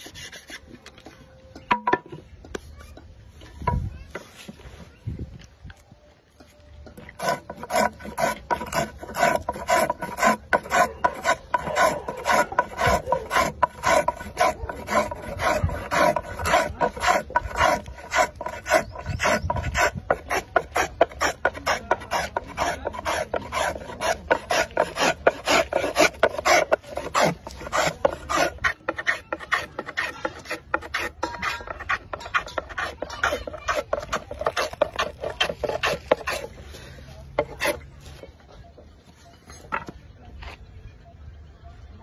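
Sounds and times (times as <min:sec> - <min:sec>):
hand plane shaving wood: 0:00.0 - 0:00.6, 0:07.2 - 0:36.8, 0:37.4 - 0:37.8.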